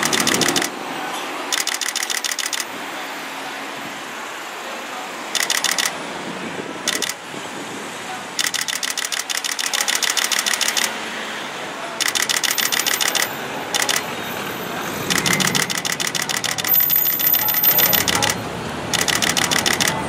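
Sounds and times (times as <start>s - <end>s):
camera shutter bursts: 0.0s - 0.7s, 1.5s - 2.7s, 5.4s - 6.0s, 6.9s - 7.2s, 8.4s - 11.0s, 12.0s - 14.0s, 15.1s - 20.0s.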